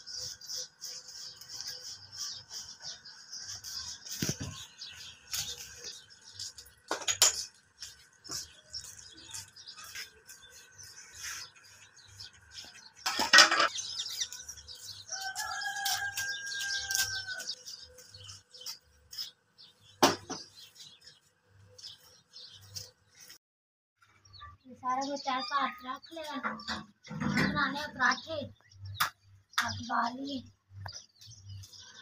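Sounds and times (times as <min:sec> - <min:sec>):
utensils clattering: 0:13.1 - 0:13.8
rooster crowing: 0:15.1 - 0:17.5.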